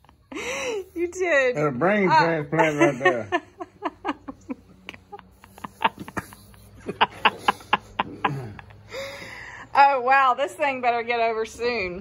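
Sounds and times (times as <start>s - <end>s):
people laughing hard: 2.6s - 9.2s.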